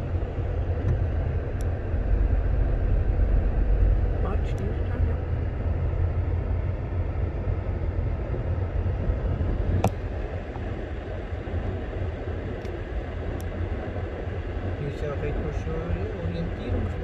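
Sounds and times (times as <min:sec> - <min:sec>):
car engine idling: 0:00.0 - 0:08.4.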